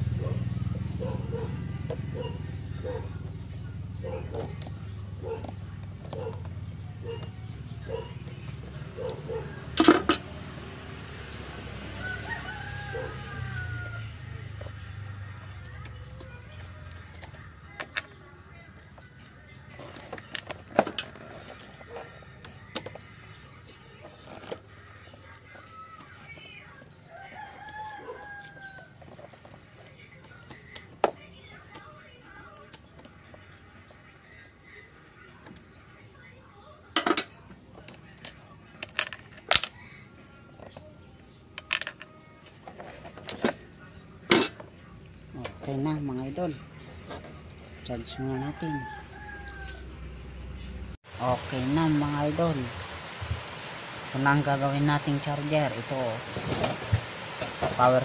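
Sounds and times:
birds chirping: 0:00.0 - 0:58.0
rooster clucking and crowing: 0:11.6 - 0:14.6, 0:27.0 - 0:29.4, 0:48.1 - 0:50.0.

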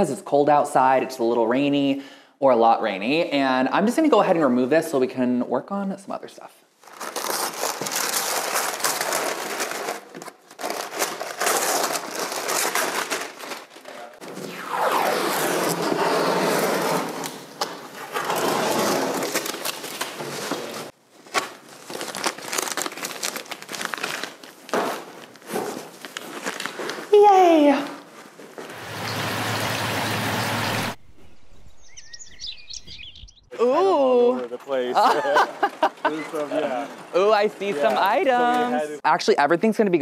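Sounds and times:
masking paper crinkling: 0:06.8 - 0:14.2, 0:16.2 - 0:28.7
tape being peeled and torn: 0:16.6 - 0:27.1.

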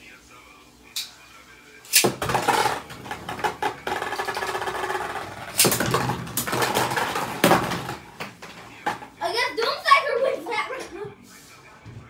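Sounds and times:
spinning tops whirring and rattling: 0:01.9 - 0:09.0.

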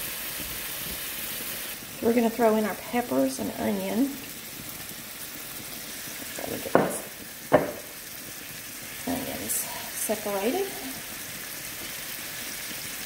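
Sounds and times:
patties sizzling in a skillet: 0:00.0 - 0:13.0
sharp knocks in a pan: 0:06.4 - 0:08.0.

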